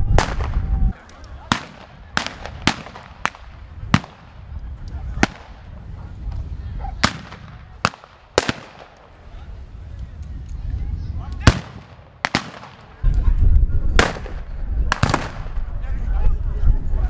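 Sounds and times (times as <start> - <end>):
rifle blank gunshots: 1.4 - 4.4, 5.2 - 5.7, 7.0 - 9.1, 11.4 - 13.0, 14.0 - 15.5
heavy low rumble: 1.8 - 17.0.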